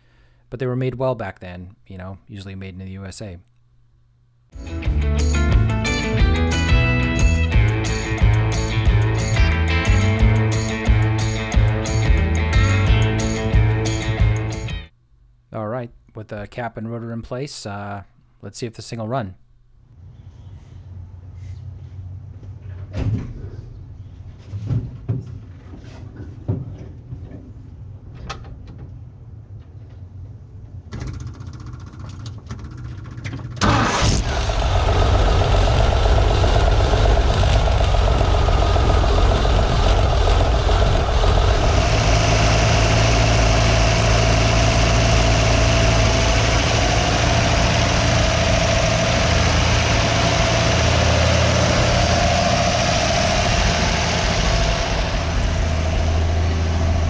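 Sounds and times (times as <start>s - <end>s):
truck engine running: 4.6s - 14.8s, 33.6s - 57.0s
truck engine cranking: 30.9s - 57.0s.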